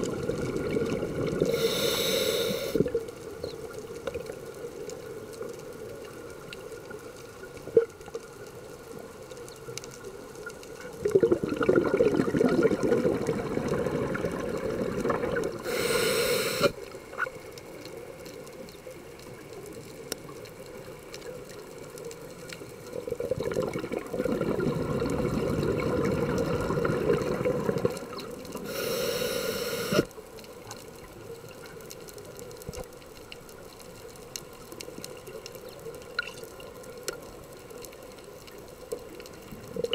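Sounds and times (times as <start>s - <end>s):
regulator inhalation hiss: 1.4s - 2.9s, 15.6s - 16.8s, 28.6s - 30.1s
bubbling exhalation underwater: 11.0s - 15.7s, 23.1s - 28.4s.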